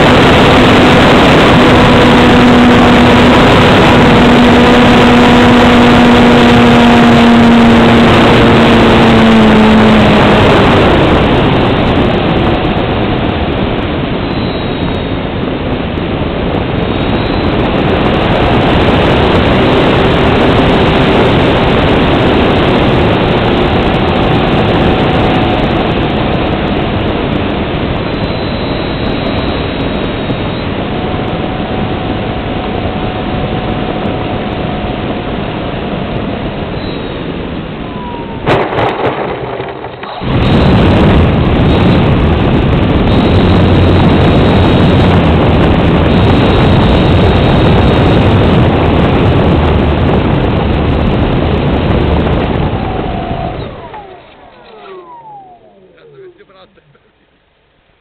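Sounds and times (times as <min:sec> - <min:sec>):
model plane engine and propeller: 0:00.0 - 0:58.0
clicks: 0:53.6 - 0:57.0.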